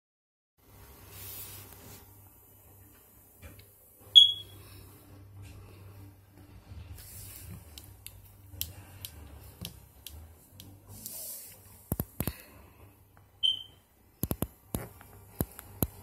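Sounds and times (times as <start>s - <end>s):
short high-pitched beep: 4.2s - 4.6s, 13.4s - 13.8s
sharp clicks and taps: 11.9s - 12.4s, 14.2s - 16.0s.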